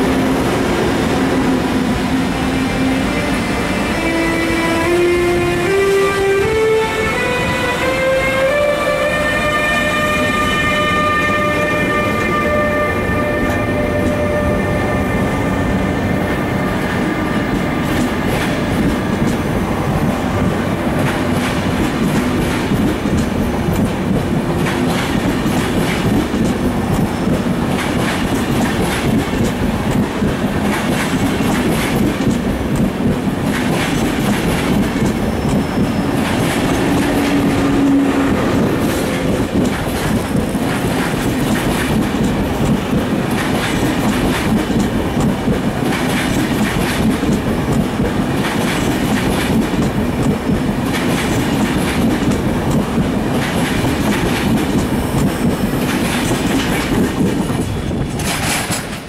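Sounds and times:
electric locomotive whine: 0:00.0 - 0:59.0
train wheels rumbling: 0:00.0 - 0:59.0
wheels clicking over rail joints: 0:21.0 - 0:59.0.

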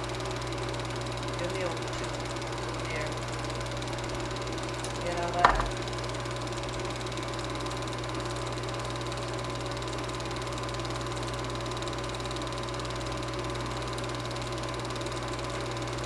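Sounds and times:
projector clatter: 0:00.0 - 0:08.9
projector motor hum: 0:00.0 - 0:16.0.

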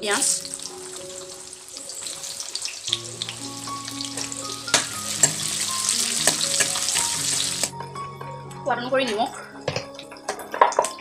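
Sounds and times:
onions frying in hot oil: 0:00.0 - 0:07.7
metal ladle knocking pan: 0:04.0 - 0:07.5.

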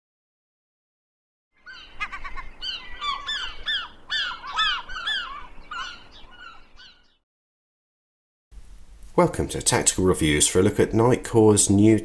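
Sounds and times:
flock of birds calling: 0:01.6 - 0:07.2.

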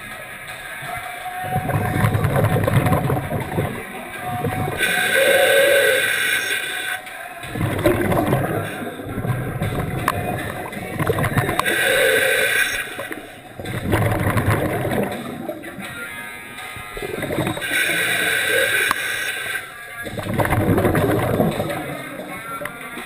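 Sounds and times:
gurgle of exhaled bubbles: 0:01.4 - 0:06.5, 0:07.4 - 0:16.1, 0:16.9 - 0:19.1, 0:20.1 - 0:23.0
regulator hissing inhale: 0:03.1 - 0:20.2.

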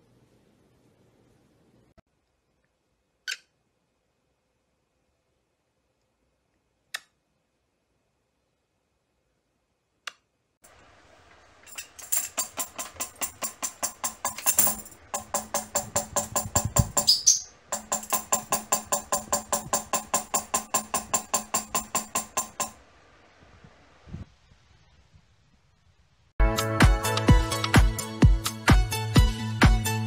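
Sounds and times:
bird pecking a tambourine: 0:11.8 - 0:22.8.

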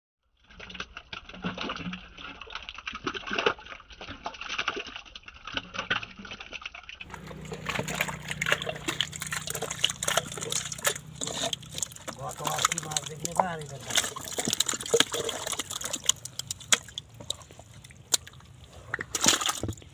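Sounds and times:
mud and water squelching: 0:00.4 - 0:19.9
steady low hum: 0:07.1 - 0:19.9.

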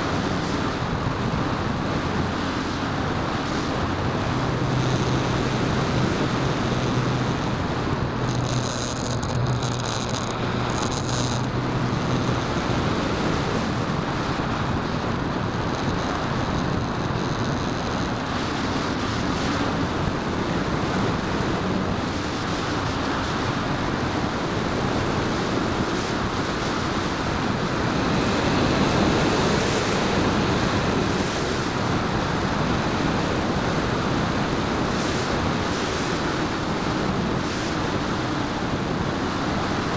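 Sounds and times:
model plane motor whine: 0:00.0 - 0:39.9
wind rushing over microphone: 0:00.0 - 0:39.9.

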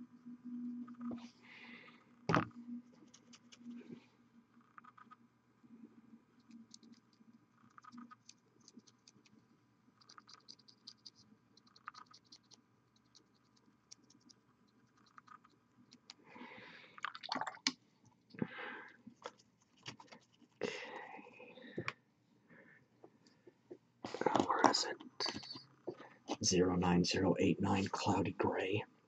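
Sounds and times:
paintbrush clicks and scratches: 0:02.9 - 0:05.2, 0:06.3 - 0:16.2, 0:19.0 - 0:20.6, 0:23.2 - 0:25.7.

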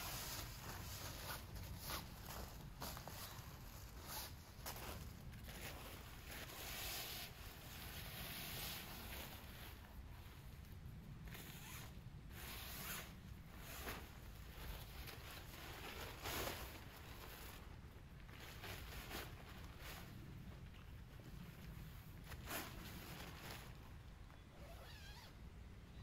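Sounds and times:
rasping rustling handling noise: 0:00.0 - 0:10.3.

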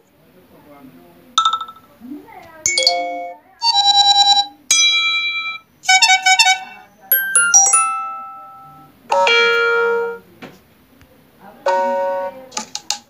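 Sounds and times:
phone notification chimes: 0:01.4 - 0:01.9, 0:02.7 - 0:05.6, 0:07.1 - 0:09.8.

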